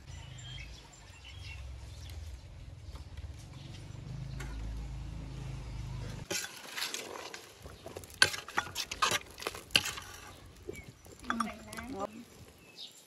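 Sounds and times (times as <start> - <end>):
utensils and cookware clinking: 6.2 - 12.2.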